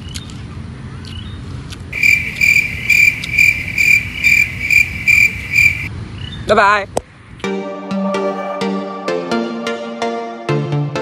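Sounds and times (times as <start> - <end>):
cricket chirps: 1.9 - 5.9.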